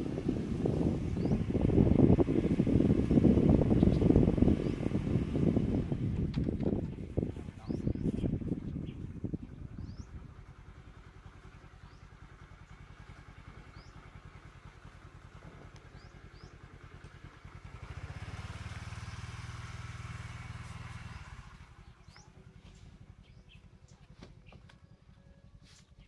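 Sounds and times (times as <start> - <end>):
small engine running: 0.0 - 25.6
bird chirps: 21.8 - 26.0.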